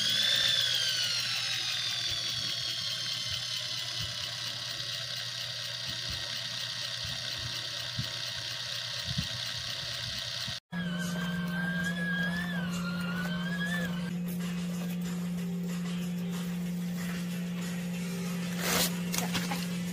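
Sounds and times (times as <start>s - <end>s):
small electric motor whining: 0.0s - 14.2s.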